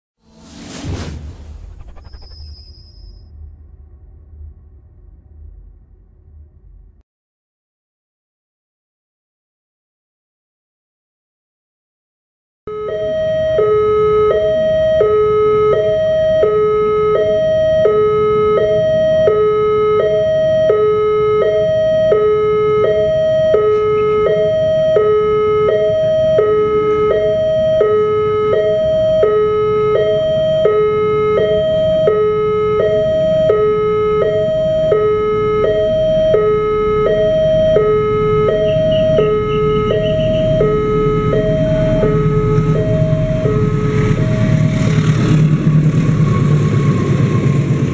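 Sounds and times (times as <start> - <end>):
low rumble: 0.2 - 7.0, 21.6 - 47.9
two-tone crossing alarm: 12.7 - 47.9.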